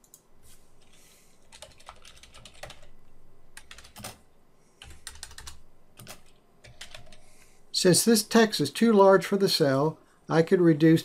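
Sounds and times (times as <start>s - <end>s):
typing on computer keyboard: 0.8s - 2.9s, 3.6s - 4.2s, 4.8s - 7.3s.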